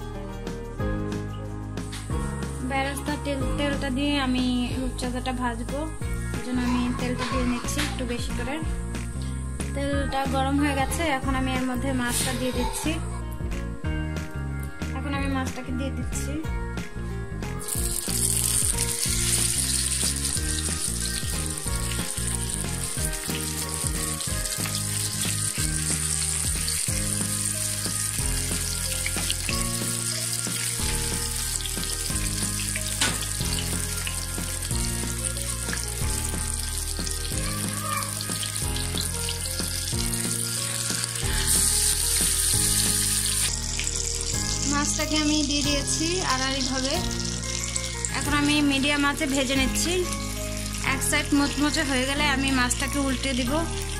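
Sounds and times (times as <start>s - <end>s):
background music with low notes: 0.0s - 53.9s
fish sizzling in hot oil: 17.6s - 53.9s.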